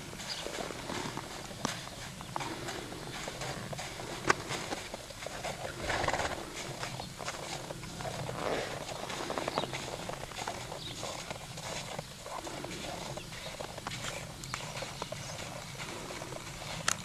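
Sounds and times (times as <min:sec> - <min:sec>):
hooves crunching in snow: 0:00.0 - 0:17.0.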